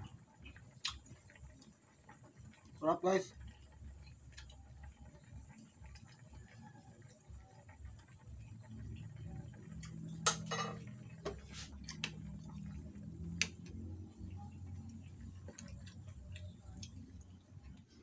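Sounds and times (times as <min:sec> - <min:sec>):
sauce simmering with small pops: 0:00.0 - 0:18.0
wooden spoon stirring: 0:10.8 - 0:13.8, 0:14.6 - 0:17.2.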